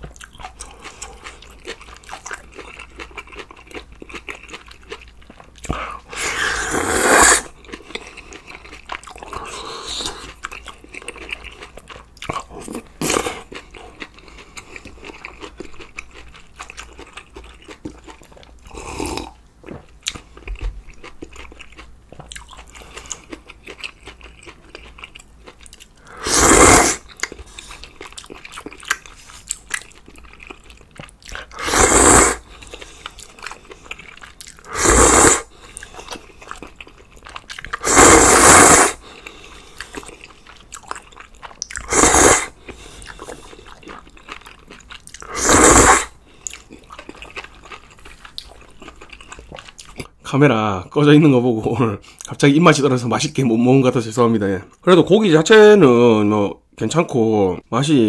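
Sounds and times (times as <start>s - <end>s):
chewing: 0.0s - 50.2s
slurping noodles: 5.7s - 7.6s, 26.0s - 27.8s, 31.3s - 33.7s, 34.6s - 36.4s, 37.7s - 40.2s, 41.8s - 43.9s, 45.2s - 46.2s.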